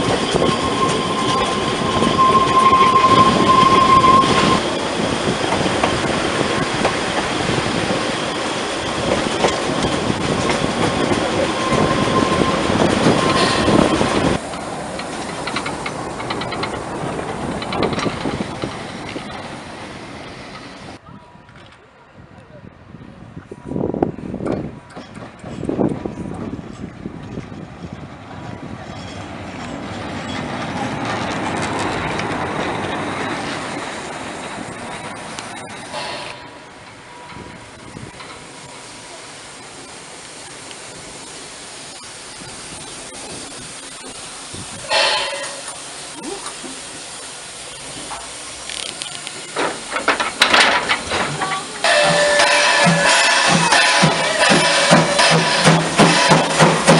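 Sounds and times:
loud steady pitched tone: 0.0s - 4.7s
steam locomotive wheels rumbling: 0.0s - 21.2s, 22.6s - 56.9s.

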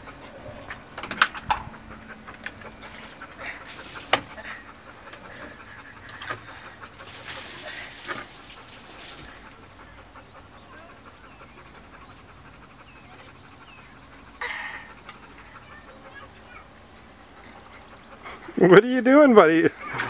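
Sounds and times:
water pouring onto wooden deck: 3.4s - 4.6s, 6.9s - 9.7s
water splashing in plastic tub: 7.0s - 9.5s.

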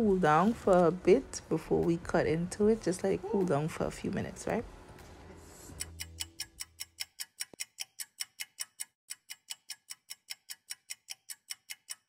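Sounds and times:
clock ticking fast: 5.8s - 12.0s.

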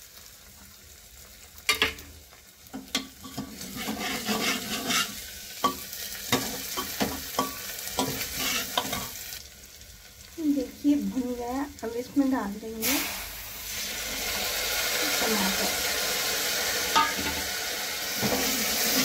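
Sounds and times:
onions sizzling in hot oil: 0.0s - 19.0s
spoon scraping metal pot: 3.0s - 5.2s, 8.0s - 9.1s.

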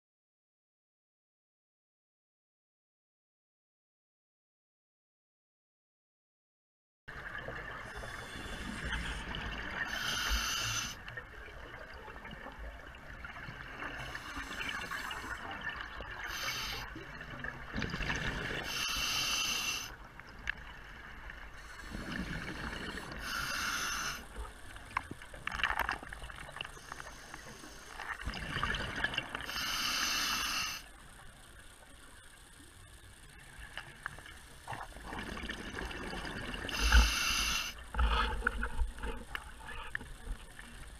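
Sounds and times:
steady hiss: 7.2s - 11.6s, 12.4s - 40.9s
diver breathing through regulator: 7.9s - 11.0s, 16.2s - 17.0s, 17.9s - 20.0s, 21.6s - 24.4s, 29.3s - 30.9s, 36.6s - 40.0s.

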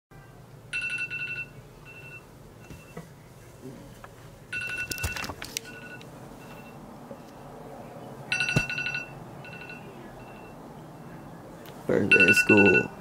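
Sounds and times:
electronic alarm beeping: 0.7s - 3.0s, 4.5s - 6.8s, 8.3s - 11.4s, 12.1s - 13.0s.

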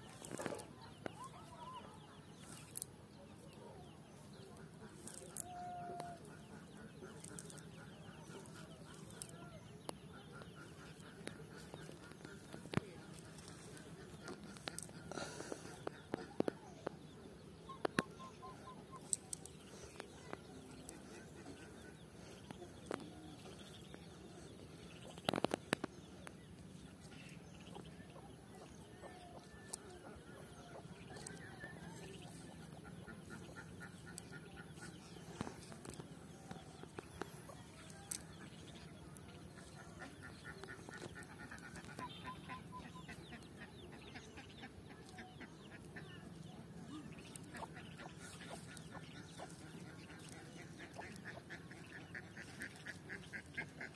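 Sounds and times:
birds calling: 0.0s - 53.9s.

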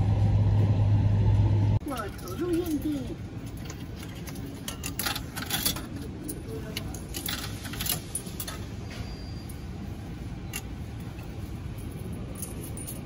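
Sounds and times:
low rumble: 0.0s - 1.8s.

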